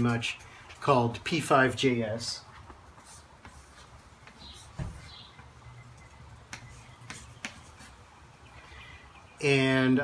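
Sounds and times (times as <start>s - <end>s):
chalk scratching on a chalkboard: 2.9s - 5.4s, 6.5s - 8.1s
chalk tapping on a board: 2.9s - 5.5s, 6.4s - 8.0s.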